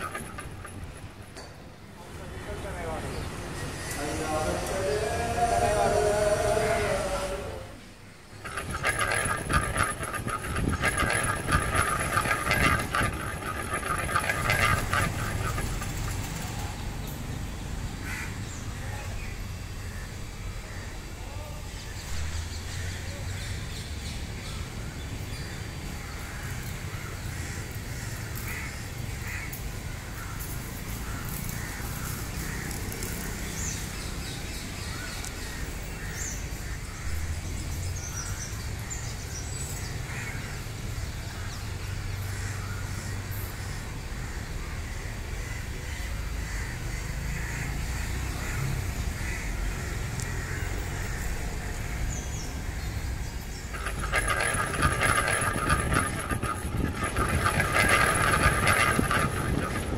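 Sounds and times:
low rumble of traffic: 0:00.0 - 0:59.9
crows cawing: 0:18.0 - 0:18.4.

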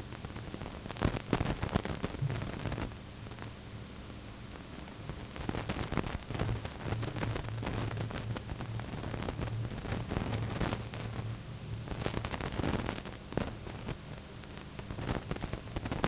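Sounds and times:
crackling: 0:00.0 - 0:16.0
tape hiss and hum: 0:00.0 - 0:16.0.

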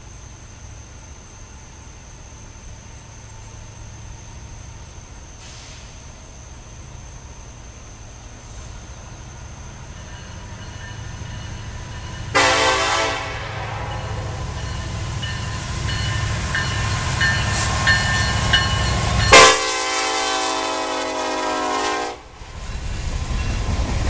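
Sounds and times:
locomotive engine rumble: 0:00.2 - 0:24.0
locomotive air horn blast: 0:12.3 - 0:14.6, 0:19.3 - 0:22.3.

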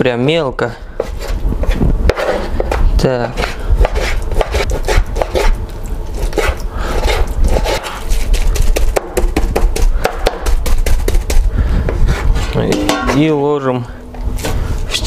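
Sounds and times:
knife chopping on wooden board: 0:08.6 - 0:11.4.

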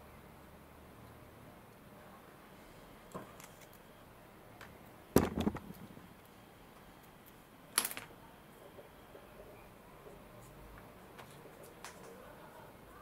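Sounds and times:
objects clattering: 0:05.2 - 0:05.9.

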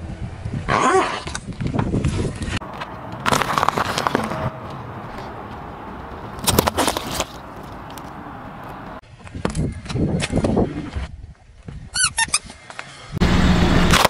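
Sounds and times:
tyre crushing small objects: 0:02.7 - 0:04.4, 0:06.4 - 0:08.2.

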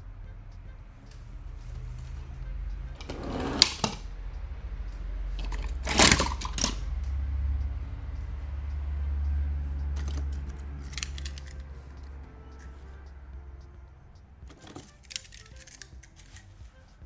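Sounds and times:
low steady hum: 0:00.0 - 0:17.0
toy cars clattering: 0:03.0 - 0:04.1, 0:05.3 - 0:06.9, 0:09.9 - 0:12.9, 0:14.5 - 0:16.6.

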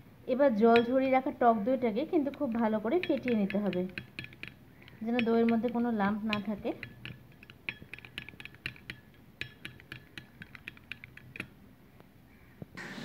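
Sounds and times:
spoon clicking against glass bowl: 0:00.7 - 0:01.2, 0:02.0 - 0:11.6.

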